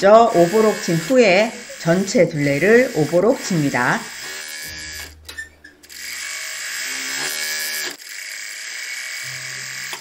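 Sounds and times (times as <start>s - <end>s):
overlock machine buzzing: 0.0s - 10.0s.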